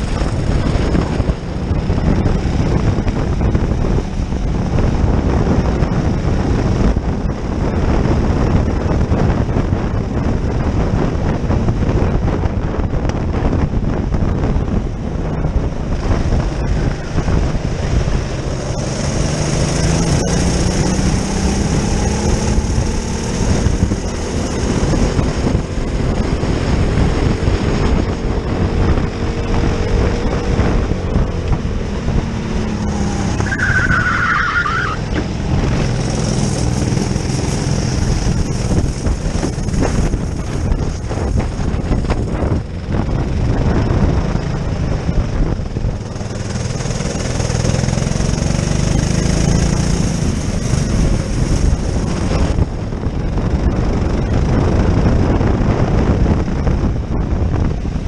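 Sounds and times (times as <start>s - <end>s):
racing kart engine: 14.8s - 56.2s.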